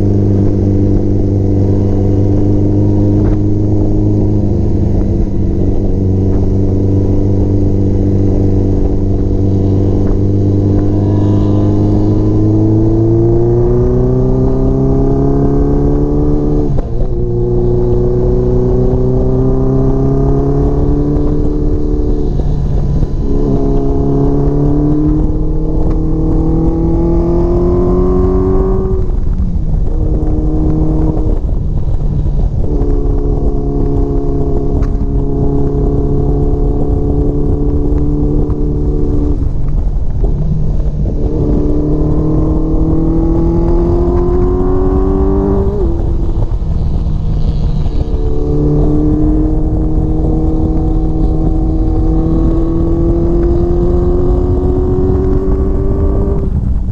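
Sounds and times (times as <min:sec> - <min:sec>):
motorcycle engine accelerating: 0:00.0 - 0:56.9
wind noise: 0:00.0 - 0:56.9.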